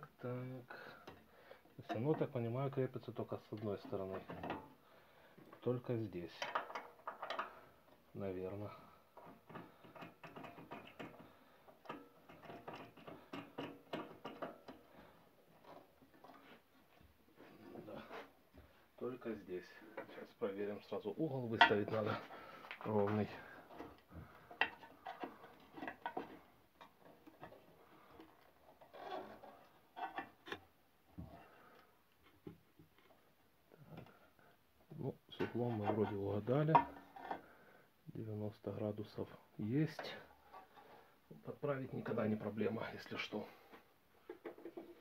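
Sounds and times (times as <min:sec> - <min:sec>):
hands clicking and tapping metal table: 0:09.2 - 0:11.2, 0:11.8 - 0:14.8.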